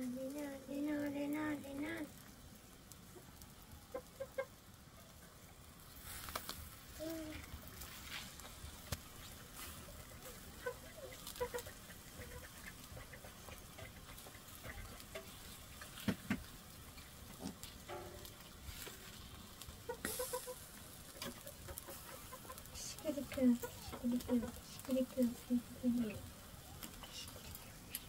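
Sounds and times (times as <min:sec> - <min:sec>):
fish sizzling on grill: 0:00.0 - 0:28.0
foil rustling clicks: 0:05.9 - 0:10.5.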